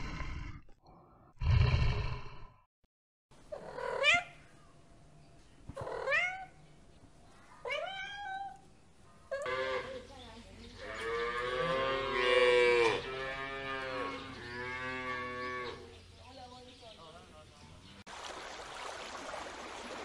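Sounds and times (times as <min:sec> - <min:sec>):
cat meowing: 0:07.6 - 0:08.6
cow mooing: 0:10.8 - 0:15.8.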